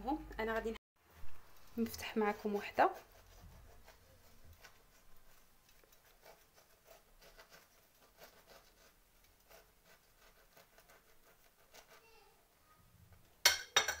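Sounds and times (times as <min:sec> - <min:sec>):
knife sawing through bread: 0:02.0 - 0:12.2.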